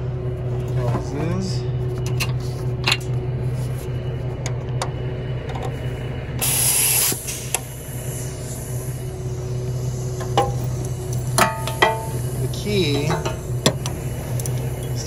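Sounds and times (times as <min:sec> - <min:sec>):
truck engine idling: 0:00.0 - 0:15.0
compressed air hissing: 0:06.4 - 0:15.0.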